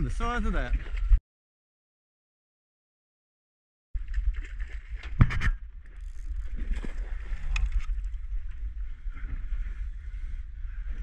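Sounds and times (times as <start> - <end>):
choppy water: 0.0 - 1.2, 4.0 - 11.0
fishing reel clicking and knocking: 5.9 - 6.6.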